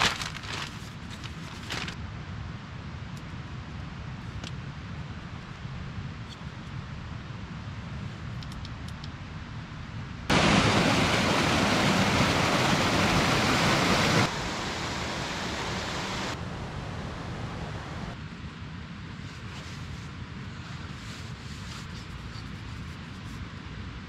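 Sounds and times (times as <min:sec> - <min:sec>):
rushing water: 0:10.3 - 0:18.2
stream flowing over rocks: 0:10.3 - 0:18.2.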